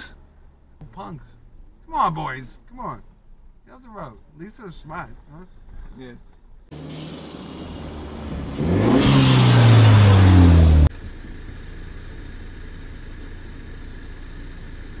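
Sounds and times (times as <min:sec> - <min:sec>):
quiet steady engine: 0:00.0 - 0:15.0
truck engine revving: 0:06.7 - 0:11.0.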